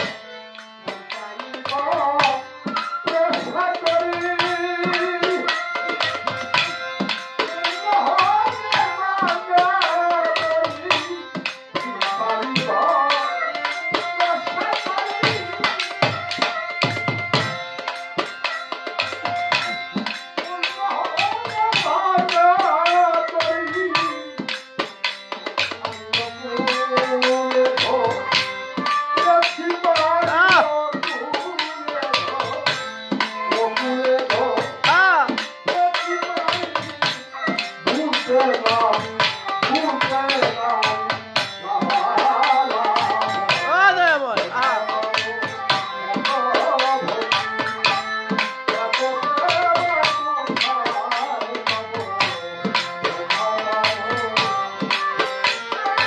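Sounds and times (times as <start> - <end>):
harmonium chords: 0.0 - 56.0
man singing: 0.9 - 17.4, 20.4 - 24.8, 25.5 - 56.0
hand drum beating: 18.4 - 56.0.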